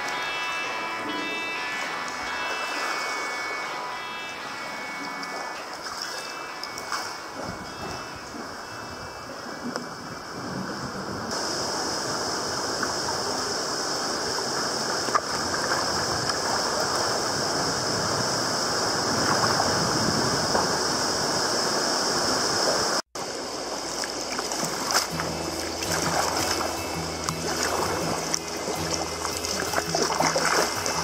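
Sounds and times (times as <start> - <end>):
sea water sloshing against rock: 23.9 - 31.0.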